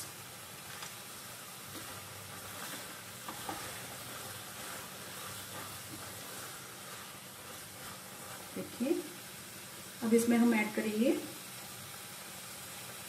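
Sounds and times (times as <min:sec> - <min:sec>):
mixture sizzling in a pan: 0:00.0 - 0:13.0
spatula scraping a pan: 0:01.6 - 0:08.9.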